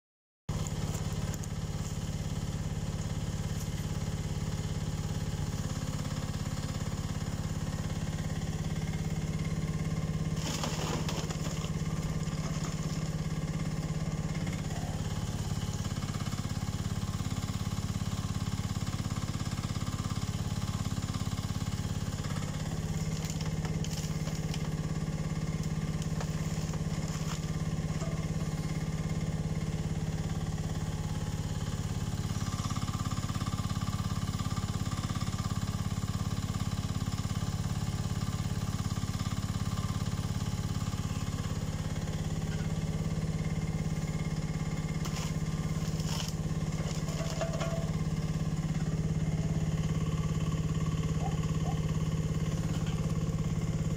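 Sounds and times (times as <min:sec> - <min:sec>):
excavator engine running: 0:00.5 - 0:53.9
bucket rasping in gravel: 0:10.2 - 0:13.3, 0:26.0 - 0:28.3, 0:45.0 - 0:48.1.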